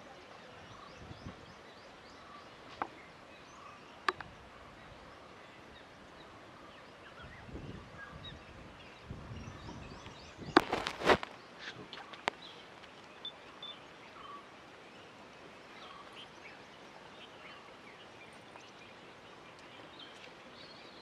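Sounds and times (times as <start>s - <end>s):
faint bird chirps: 0.1s - 21.0s.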